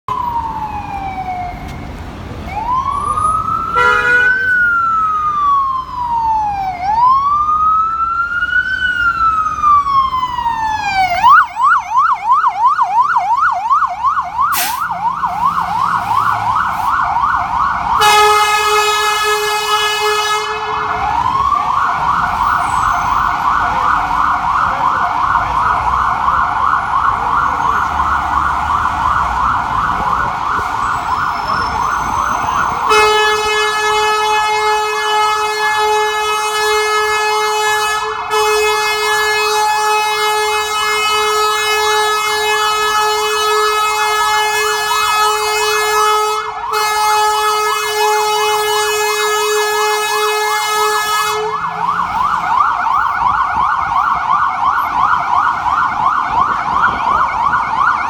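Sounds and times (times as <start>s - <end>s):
ambulance siren wailing: 0.1s - 58.0s
air horn blasts: 3.8s - 4.5s, 14.5s - 14.8s, 18.0s - 21.0s, 32.8s - 51.7s.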